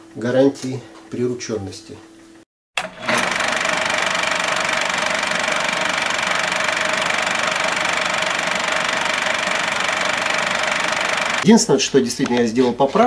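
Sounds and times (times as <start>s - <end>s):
steady mechanical whirring: 2.8s - 11.5s.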